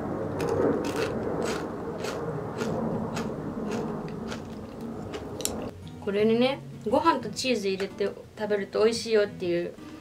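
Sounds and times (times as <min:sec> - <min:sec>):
low drone: 0:00.0 - 0:05.7.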